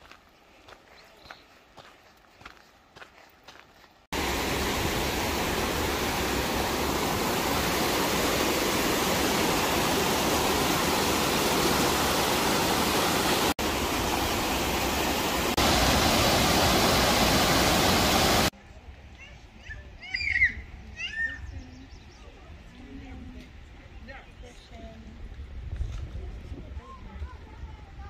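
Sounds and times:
waterfall rushing: 4.1s - 18.5s.

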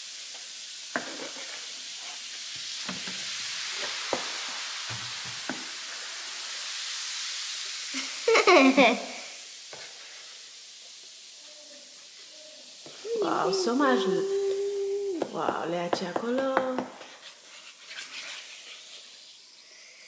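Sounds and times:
baking soda and vinegar fizzing: 0.0s - 20.0s
metal spoon stirring foam: 15.2s - 19.4s.

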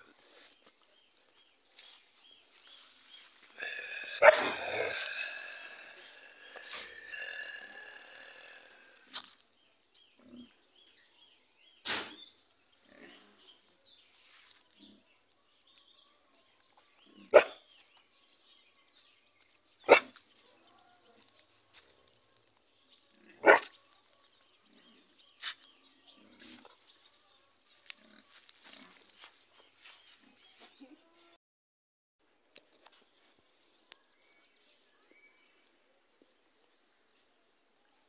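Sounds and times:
dog barking: 4.2s - 4.9s, 17.3s - 17.6s, 19.9s - 20.2s, 23.4s - 23.7s.

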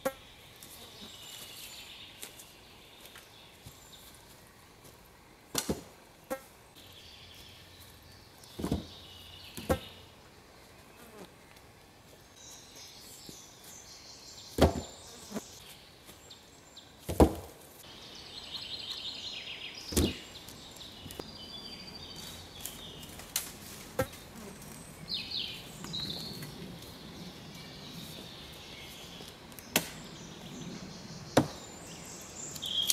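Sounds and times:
birds chirping and trilling: 6.6s - 11.1s, 12.2s - 17.0s, 17.8s - 23.3s, 24.0s - 32.9s.

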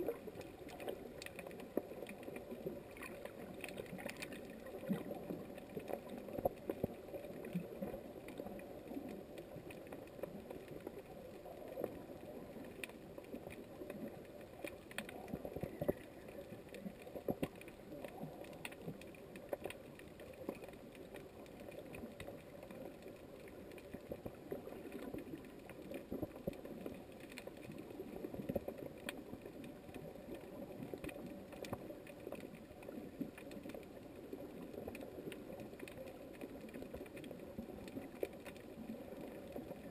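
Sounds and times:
low underwater wash: 0.0s - 39.9s
small irregular clicks and crackles: 0.0s - 39.9s.

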